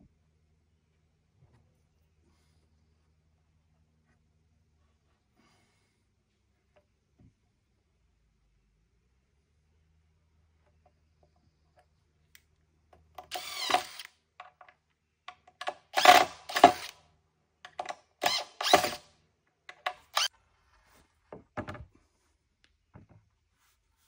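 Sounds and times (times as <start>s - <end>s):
cordless drill driving screws: 13.2s - 14.1s, 15.6s - 17.0s, 18.2s - 19.1s, 20.0s - 20.3s.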